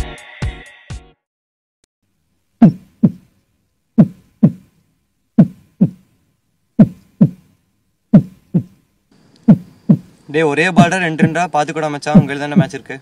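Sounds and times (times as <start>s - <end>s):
heartbeat double thumps: 2.6s - 3.3s, 4.0s - 4.7s, 5.4s - 6.1s, 6.8s - 8.8s, 9.5s - 10.2s, 10.8s - 11.4s.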